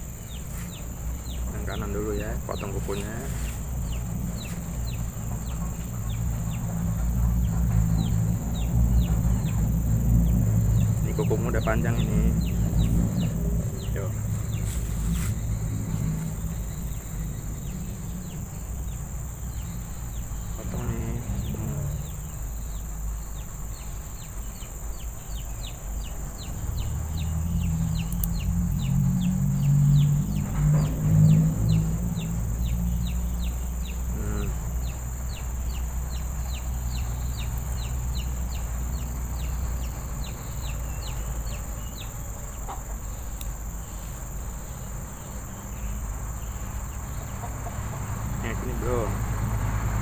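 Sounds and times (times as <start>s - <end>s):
high insect drone: 0.0s - 50.0s
chickens clucking: 33.1s - 45.5s, 46.1s - 49.2s.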